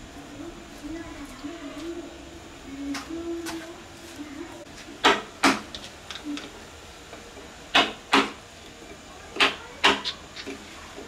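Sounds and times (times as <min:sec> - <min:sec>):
chisel knocking on wood: 0:07.7 - 0:08.4.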